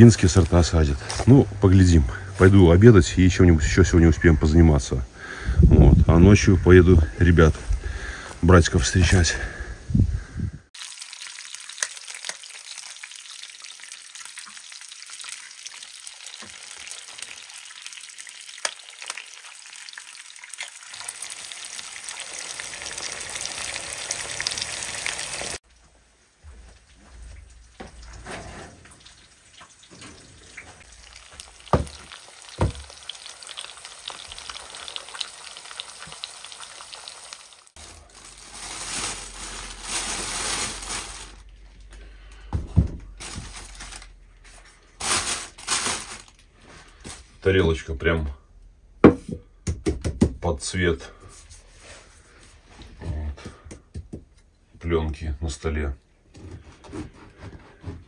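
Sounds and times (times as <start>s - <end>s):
food sizzling in a frying pan: 10.8s - 25.6s, 29.0s - 41.4s
plastic bag rustling: 37.7s - 41.6s, 43.1s - 47.4s.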